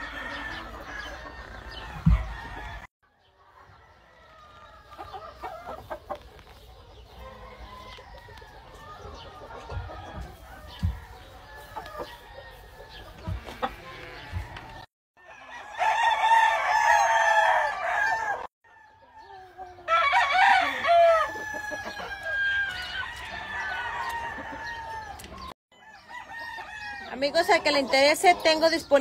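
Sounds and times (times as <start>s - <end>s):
faint crowing of other roosters: 0.0s - 5.4s, 7.2s - 27.2s
chickens clucking: 0.0s - 29.0s
rooster crowing: 15.2s - 19.0s, 19.9s - 25.2s.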